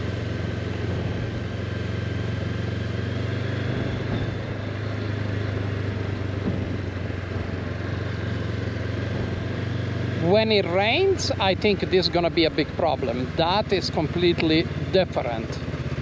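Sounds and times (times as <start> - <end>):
motorcycle engine running: 0.0 - 16.0
wind and road noise: 0.0 - 16.0.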